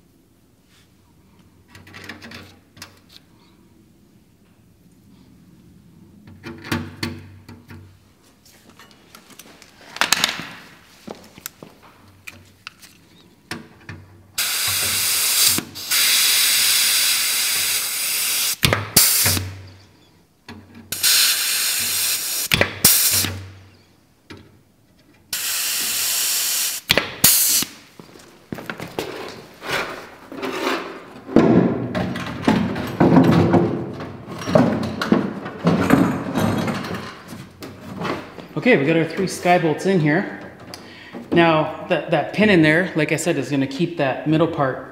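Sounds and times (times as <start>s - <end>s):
pneumatic tool hissing: 14.4s - 19.7s, 20.9s - 23.6s, 25.3s - 27.8s.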